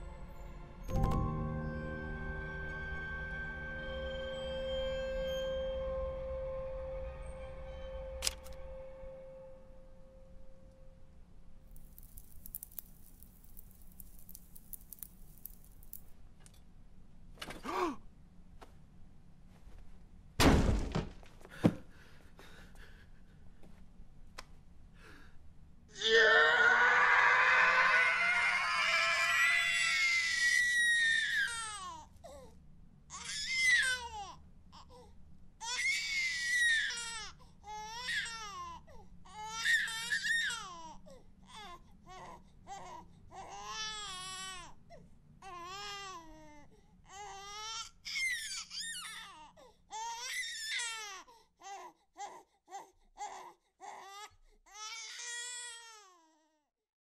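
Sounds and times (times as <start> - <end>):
baby crying: 26.0 - 32.1.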